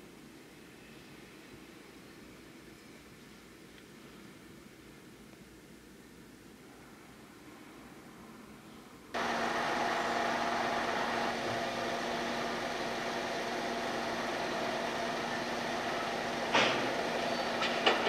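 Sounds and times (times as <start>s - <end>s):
engine humming: 9.2s - 18.0s.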